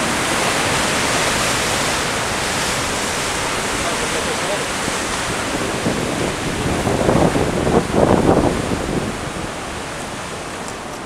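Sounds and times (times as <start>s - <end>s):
surf breaking on rocks: 0.0s - 11.0s
wind buffeting microphone: 0.0s - 11.0s.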